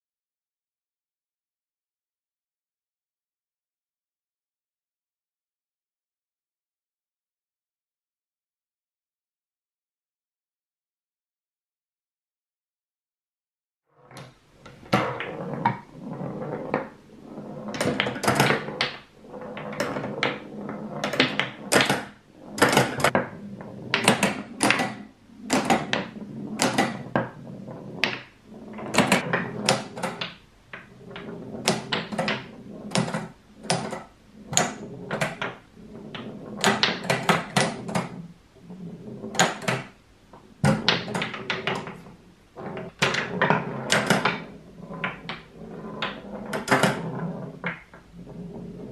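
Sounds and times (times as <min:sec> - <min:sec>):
ball rolling on plywood: 0:14.0 - 0:48.9
wooden clacks of pinball flippers: 0:21.0 - 0:23.3, 0:24.0 - 0:27.3.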